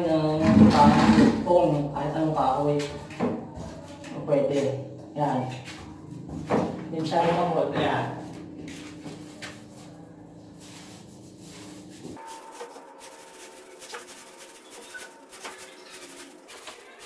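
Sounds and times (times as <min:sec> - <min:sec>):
low steady hum: 0:04.8 - 0:12.2
paintbrush brushing paint on wall: 0:08.6 - 0:17.0.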